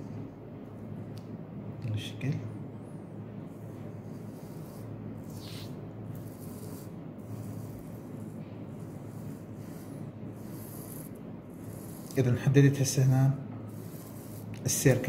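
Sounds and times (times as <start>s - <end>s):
compass scraping on paper: 4.0s - 12.4s, 13.7s - 15.0s.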